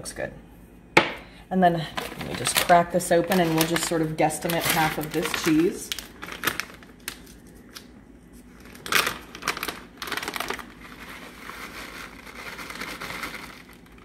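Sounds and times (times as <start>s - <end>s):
plastic bag crinkling: 1.8s - 14.0s
cheese rustling into steel bowl: 1.9s - 14.0s.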